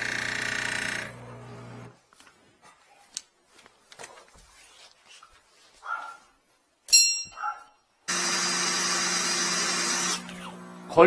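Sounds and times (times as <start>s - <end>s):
electric machine humming: 0.0s - 2.0s, 8.1s - 11.0s.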